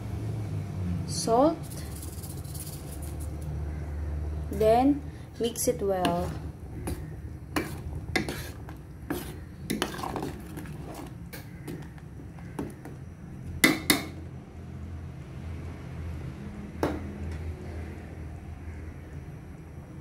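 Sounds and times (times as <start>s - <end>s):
metal spoon scraping a pot: 1.6s - 3.4s, 5.4s - 12.9s.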